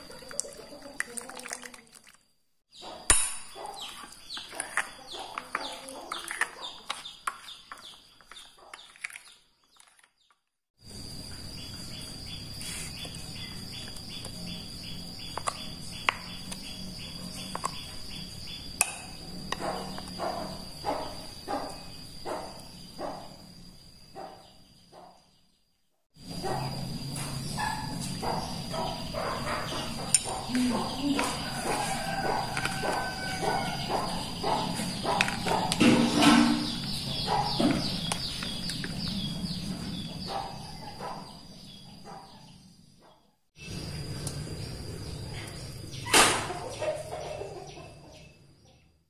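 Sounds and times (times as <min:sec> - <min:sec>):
spoon stirring batter in glass bowl: 0:03.8 - 0:10.0.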